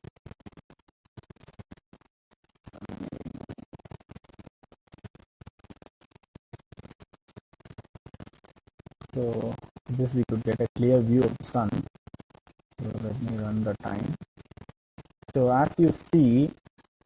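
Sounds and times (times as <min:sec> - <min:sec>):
microphone crackling: 0:09.1 - 0:11.9, 0:12.8 - 0:16.6.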